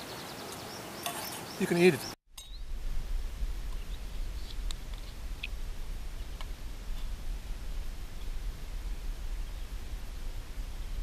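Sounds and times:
low rumble: 2.6 - 11.0.

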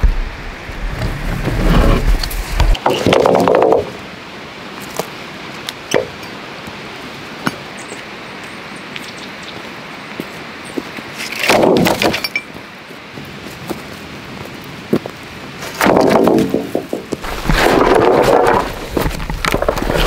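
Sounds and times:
log clattering on stony ground: 1.0 - 4.0, 4.8 - 6.4, 7.4 - 7.7, 10.2 - 20.0
dry wood clicks and knocks: 11.3 - 12.2, 15.8 - 17.2, 17.8 - 20.0.

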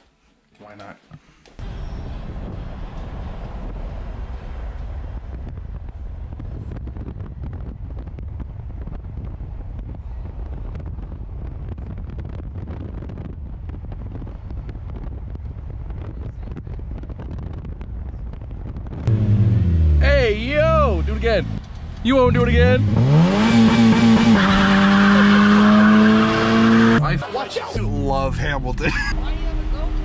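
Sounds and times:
wind buffeting microphone: 1.6 - 19.6
loud abrupt sound: 19.1 - 27.8
pickup truck driving: 19.1 - 30.0.

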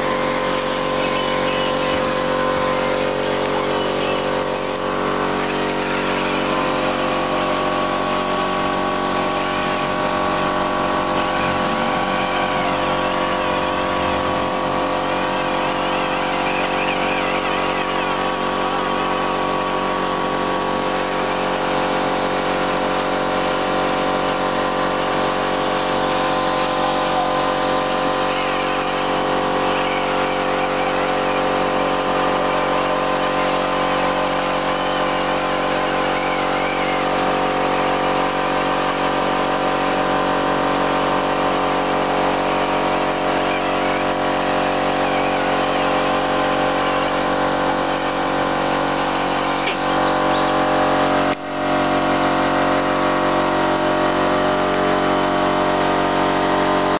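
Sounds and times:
air-powered polisher whine: 0.0 - 56.9.

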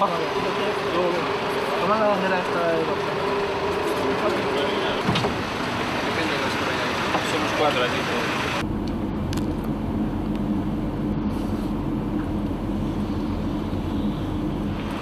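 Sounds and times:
car cabin rumble: 4.0 - 15.0.

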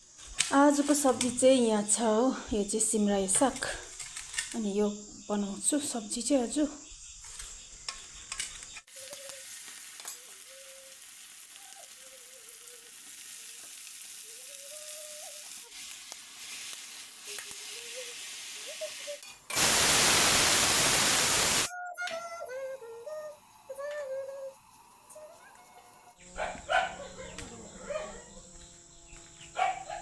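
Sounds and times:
greens sizzling in a wok: 0.0 - 5.4, 6.1 - 21.7.

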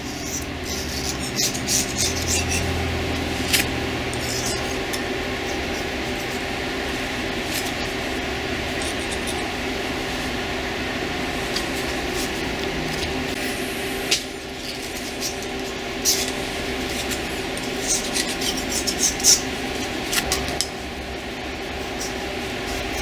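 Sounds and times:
razor blade scraping metal: 0.0 - 6.5, 8.7 - 9.7, 14.1 - 20.7
steady background hum: 0.0 - 23.0.

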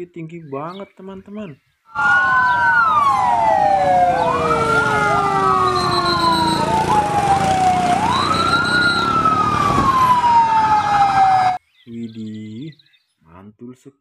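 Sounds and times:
fire engine sirens wailing: 1.9 - 11.6.

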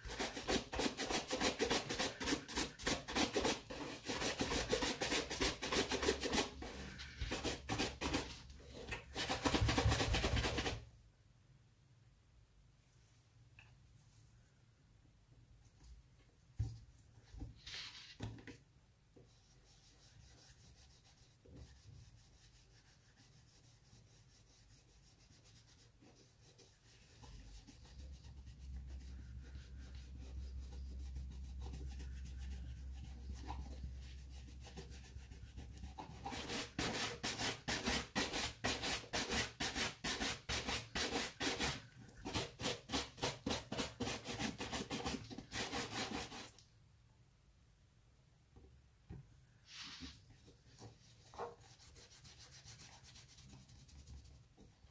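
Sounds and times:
faint rubbing of polish: 15.6 - 18.5, 19.2 - 40.2, 49.5 - 54.9
shoe brush strokes on leather: 49.6 - 50.2.

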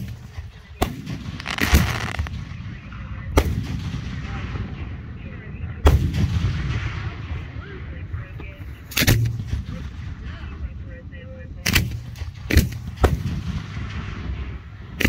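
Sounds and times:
fireworks booming: 0.0 - 5.0.

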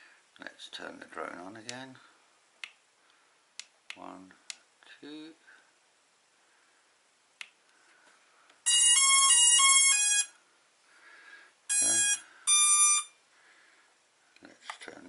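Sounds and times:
remote controller beeps: 8.7 - 10.3, 11.7 - 13.2.

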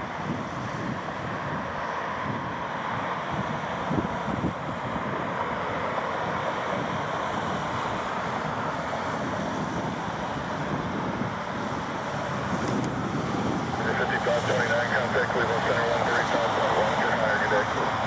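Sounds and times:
jet engines roaring: 0.0 - 18.0
wind buffeting microphone: 0.0 - 18.0.

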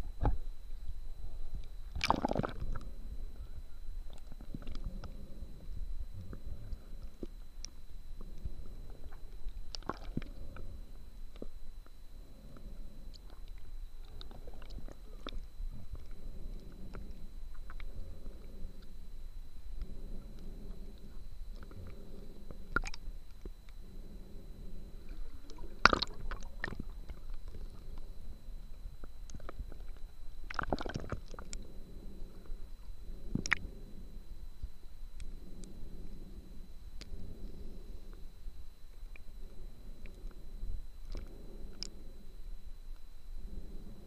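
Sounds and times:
faint steady high tone: 0.0 - 44.0
muffled underwater rumble: 0.0 - 44.0
regulator bubbles crackling: 1.6 - 11.6, 19.8 - 23.8, 24.9 - 31.7
small clicks and crackles: 4.0 - 5.2, 6.2 - 19.0, 29.0 - 31.7.

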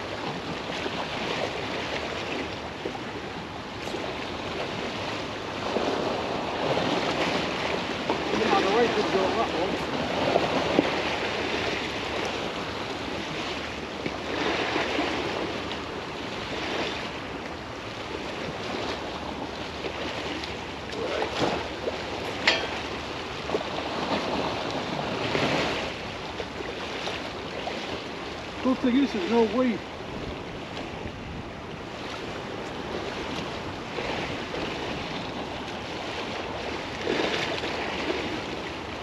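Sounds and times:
waves washing against bank: 0.0 - 39.0
wind on microphone: 0.0 - 39.0.

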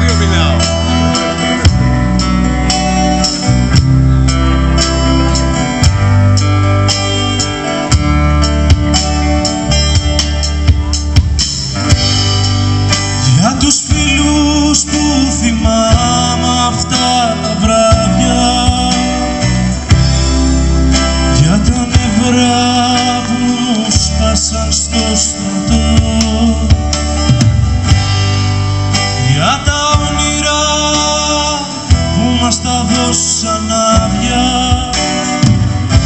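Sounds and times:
acoustic guitar strumming: 0.0 - 36.0
live rock band playing: 0.0 - 36.0
person singing: 13.2 - 19.6, 21.3 - 27.1, 29.1 - 35.4.

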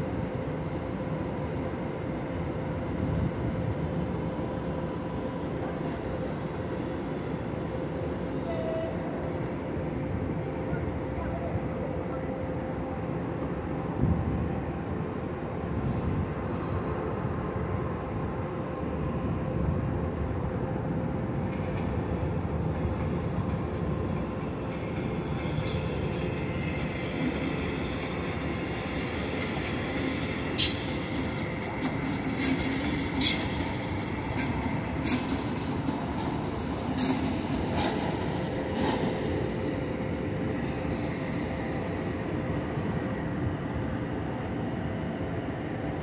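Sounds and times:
train rolling past: 0.0 - 46.0
high wheel squeal: 40.5 - 42.4.

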